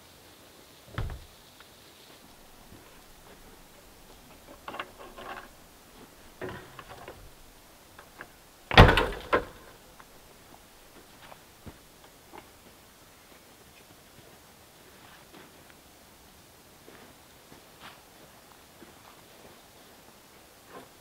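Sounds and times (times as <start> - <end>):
loud double thump: 0.9 - 1.3
cooking gear clattering: 2.4 - 9.6.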